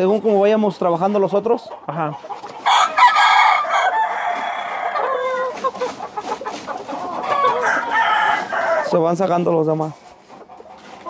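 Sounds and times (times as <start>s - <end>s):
rooster crowing: 2.6s - 5.5s, 7.3s - 9.0s.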